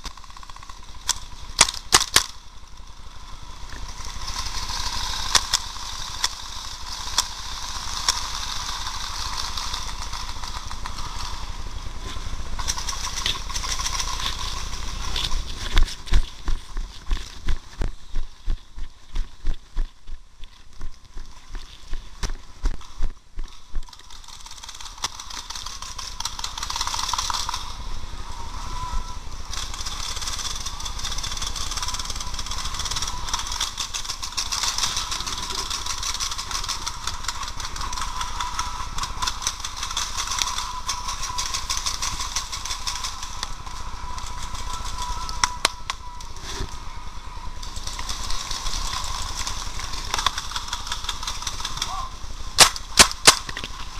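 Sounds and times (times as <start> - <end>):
steady rushing noise with whine: 0.0 - 53.9
running footsteps thudding: 15.2 - 23.9.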